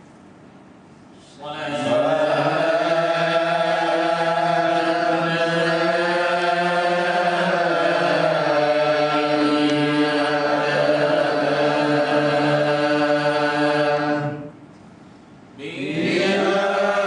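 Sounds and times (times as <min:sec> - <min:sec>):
person chanting: 0:01.4 - 0:14.5, 0:15.6 - 0:17.0.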